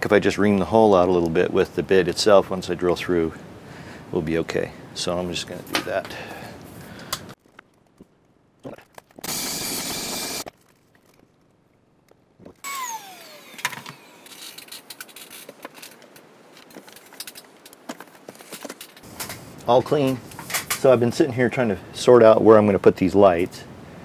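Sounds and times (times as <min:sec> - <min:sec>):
machine running loudly: 0:09.2 - 0:10.4
vacuum cleaner motor winding down: 0:09.2 - 0:10.4, 0:12.6 - 0:14.4
hose clicking and rustling: 0:10.4 - 0:12.7, 0:13.6 - 0:21.1.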